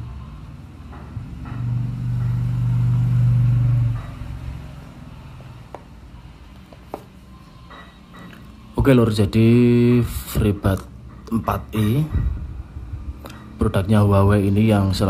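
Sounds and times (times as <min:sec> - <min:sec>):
vehicle engine passing by: 0:00.0 - 0:06.6.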